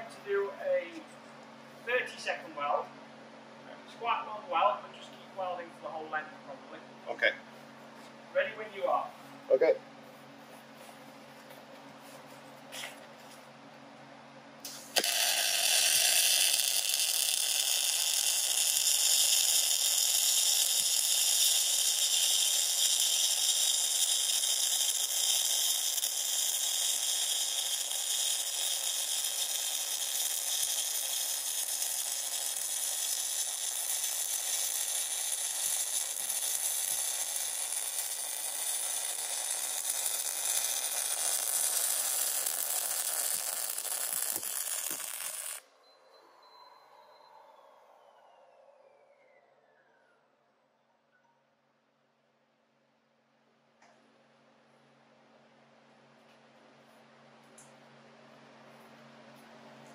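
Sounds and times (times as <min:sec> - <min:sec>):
welding arc crackling: 0:14.6 - 0:45.6.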